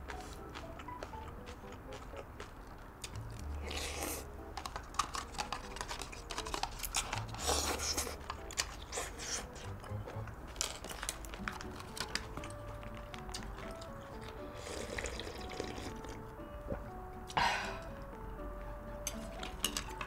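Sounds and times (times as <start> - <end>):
wet chewing clicks: 0.0 - 16.2
noodle slurps: 14.6 - 16.0.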